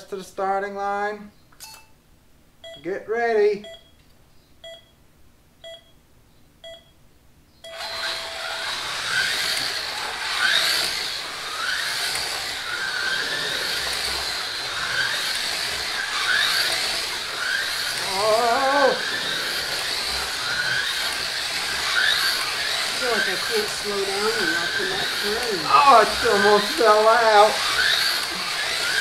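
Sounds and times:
race start beeps: 0:03.6 - 0:04.0, 0:04.6 - 0:05.0, 0:05.6 - 0:06.0, 0:06.6 - 0:07.0, 0:07.6 - 0:08.5
slot car motors whining: 0:07.7 - 0:29.0.

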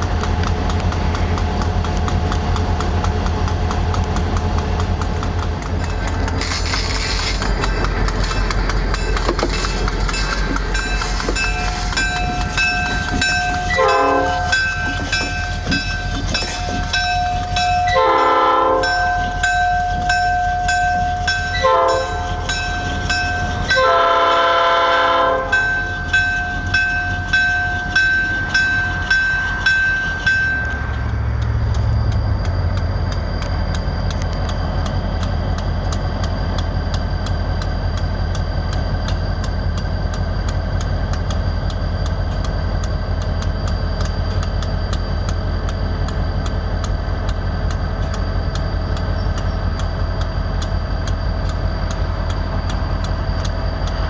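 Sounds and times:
diesel locomotive engine rumbling: 0:00.0 - 0:54.0
locomotive bell ringing: 0:04.2 - 0:54.0
air horn blasts: 0:13.8 - 0:14.4, 0:18.0 - 0:18.9, 0:21.6 - 0:22.1, 0:23.7 - 0:25.6.

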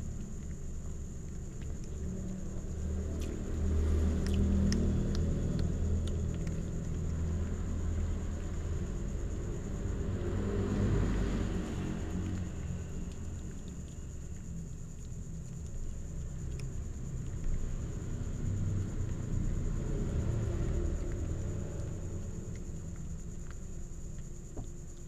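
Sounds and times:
steady low rumble: 0:00.0 - 0:25.0
cats chewing clicks: 0:03.1 - 0:07.5.

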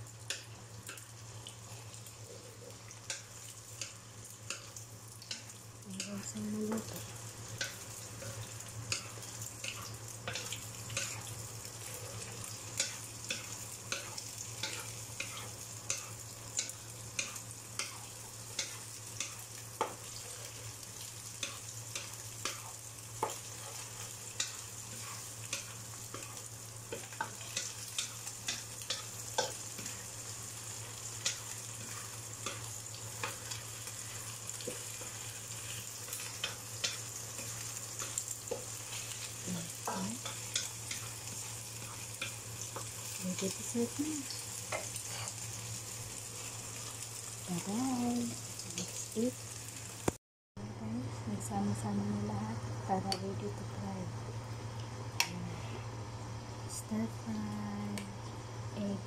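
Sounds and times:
eggs sizzling in a wok: 0:00.0 - 0:50.2, 0:50.8 - 0:59.0
wooden spatula scraping a pan: 0:07.6 - 0:16.2, 0:22.4 - 0:30.0, 0:44.7 - 0:45.4.

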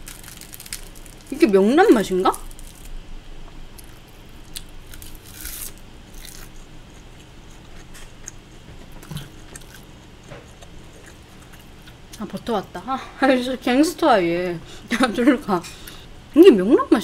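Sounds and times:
crisp crackles: 0:00.0 - 0:03.0, 0:03.8 - 0:06.6
woman chewing crisp food: 0:03.5 - 0:12.2.

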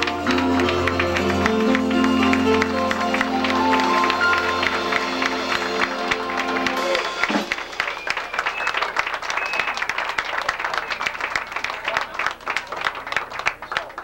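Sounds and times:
live band chord: 0:00.0 - 0:08.2
audience applauding: 0:00.0 - 0:14.0.

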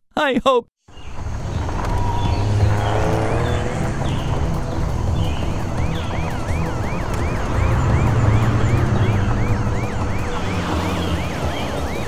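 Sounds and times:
cartoon police siren wailing: 0:05.8 - 0:12.0.

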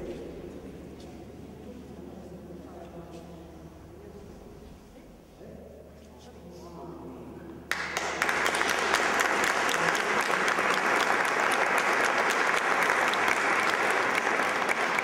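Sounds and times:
audience applause: 0:07.7 - 0:15.0.

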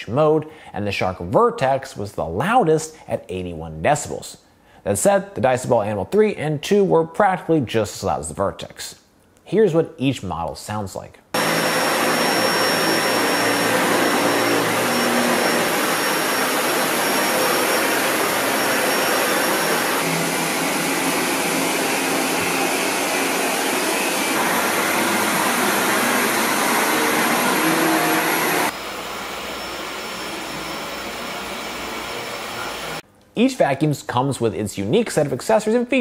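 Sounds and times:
thin high whine: 0:11.4 - 0:33.0
vacuum cleaner running on carpet: 0:11.4 - 0:33.0.

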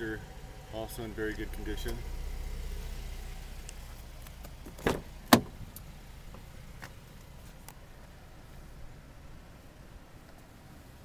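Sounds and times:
car door clunking shut: 0:04.2 - 0:07.1
car door knock: 0:04.7 - 0:05.6.

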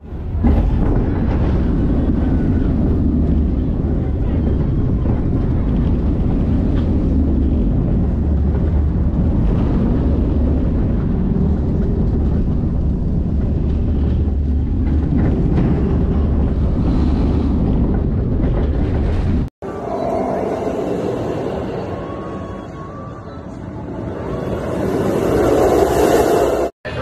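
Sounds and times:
wind on microphone: 0:00.0 - 0:19.5
roller coaster rumbling on track: 0:00.0 - 0:27.0.

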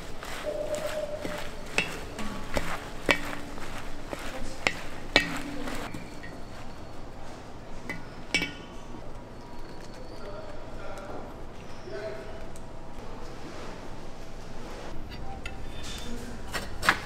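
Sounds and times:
cutlery clinking against plates: 0:00.0 - 0:10.8.

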